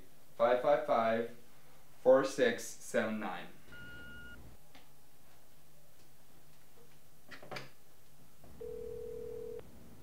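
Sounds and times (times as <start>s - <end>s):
telephone dial tone: 8.6s - 9.6s.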